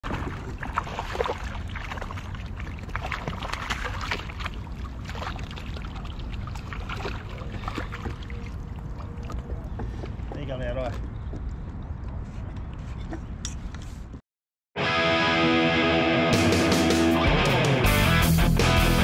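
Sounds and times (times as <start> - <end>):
small splashes: 0.0 - 10.2
water lapping around kayak: 0.0 - 13.2.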